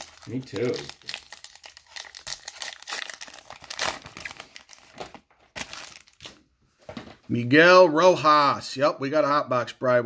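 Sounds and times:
wrapper crinkling and tearing: 0.0 - 6.4.

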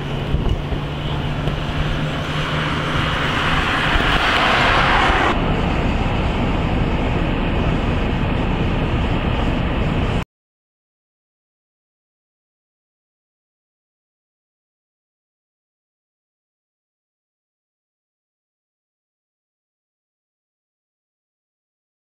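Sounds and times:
cars driving on snowy road: 0.0 - 10.2
wind rumbling on microphone: 0.0 - 10.2.

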